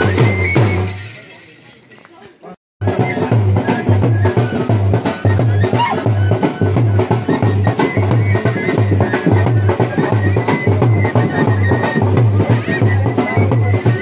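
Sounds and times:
dhol drumming: 0.0s - 1.1s, 2.8s - 14.0s.

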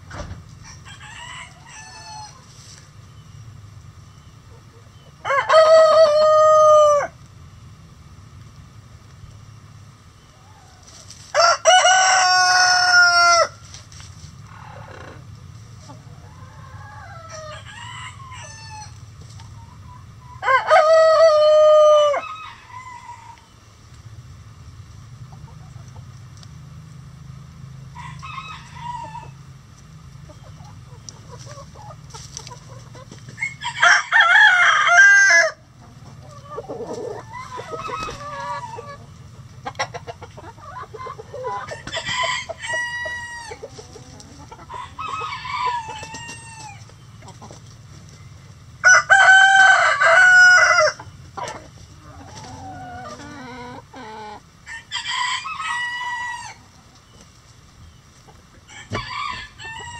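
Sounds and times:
chickens clucking: 0.0s - 59.9s
rooster crowing: 0.6s - 2.4s, 5.2s - 7.2s, 10.6s - 13.6s, 16.3s - 19.0s, 20.4s - 23.4s, 27.9s - 29.4s, 33.4s - 35.6s, 41.4s - 43.6s, 44.6s - 46.8s, 48.8s - 51.0s, 54.6s - 56.6s, 58.7s - 59.9s.

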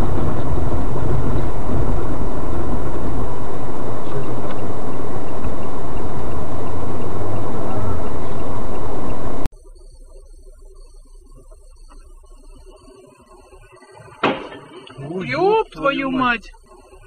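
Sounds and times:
road and engine rumble: 0.0s - 17.0s.

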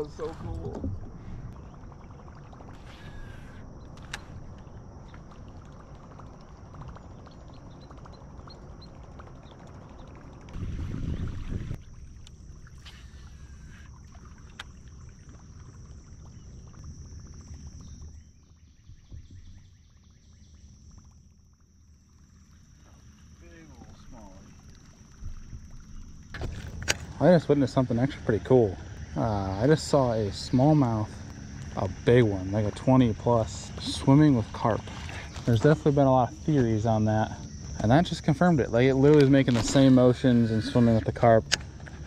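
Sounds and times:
faint high-pitched whine: 0.0s - 42.0s
wind noise: 10.5s - 11.8s.

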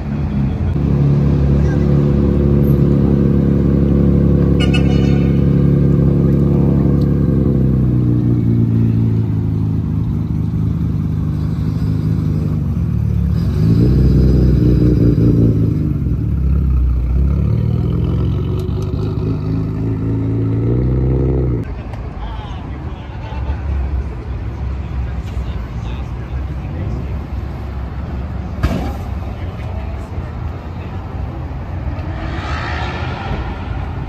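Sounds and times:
car engine and exhaust revving: 0.0s - 21.7s, 30.5s - 34.0s.

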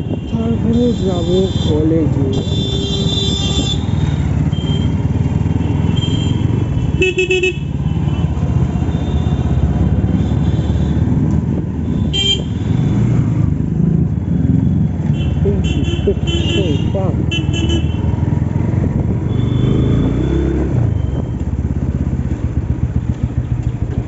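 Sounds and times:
vehicle horn toots: 0.0s - 5.0s, 5.9s - 8.3s, 11.8s - 13.0s, 15.1s - 18.1s
motorcycle engine rumble: 0.0s - 24.0s.

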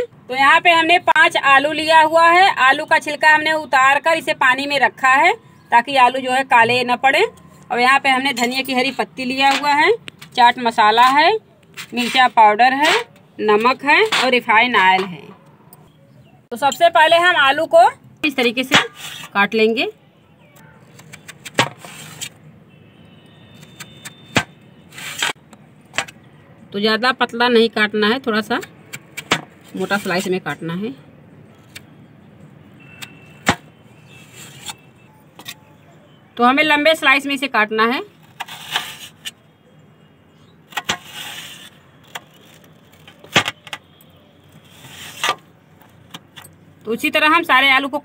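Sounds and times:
knife scraping through potato: 11.8s - 13.1s, 38.2s - 39.3s, 40.7s - 41.8s, 44.6s - 45.4s.

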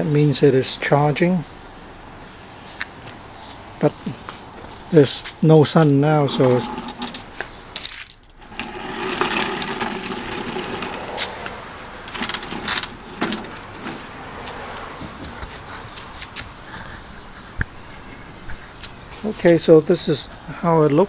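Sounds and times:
plastic wheels rolling on concrete: 5.8s - 15.4s
lawn mower handle and deck rattling: 6.3s - 14.3s
sharp clicks and knocks: 6.4s - 14.1s.

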